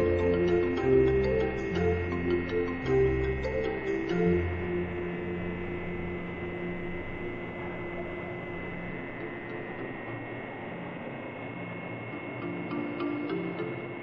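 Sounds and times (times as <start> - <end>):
background music low tones: 0.0 - 14.0
high steady whine: 0.0 - 14.0
printing machinery humming: 0.0 - 14.0.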